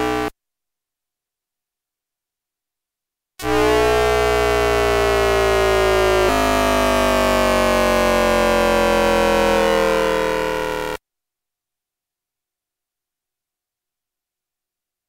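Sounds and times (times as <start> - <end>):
buzzing electronic tones: 0.0 - 0.3, 3.4 - 11.0.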